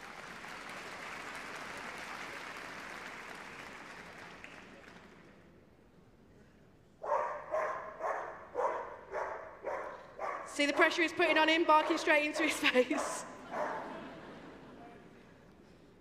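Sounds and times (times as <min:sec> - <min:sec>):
crowd applauding: 0:00.0 - 0:05.4
dog barking loudly: 0:07.0 - 0:10.5, 0:12.4 - 0:13.9.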